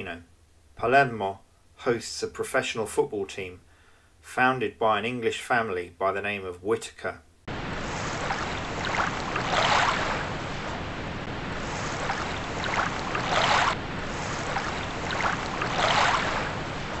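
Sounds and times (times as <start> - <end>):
wind: 7.0 - 17.0
small waves washing onto shore: 7.5 - 17.0.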